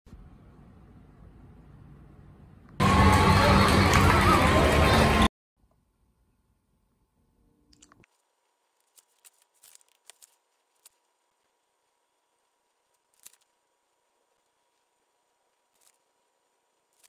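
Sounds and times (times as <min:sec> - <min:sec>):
paperback book rustling: 0:08.1 - 0:17.0.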